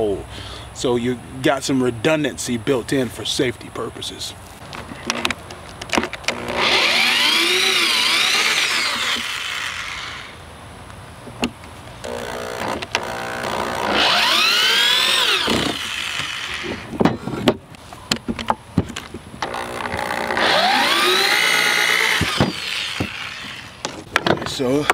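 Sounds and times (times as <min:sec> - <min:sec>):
electric drill motor whine: 0:06.3 - 0:10.4, 0:12.0 - 0:16.8, 0:19.4 - 0:23.8.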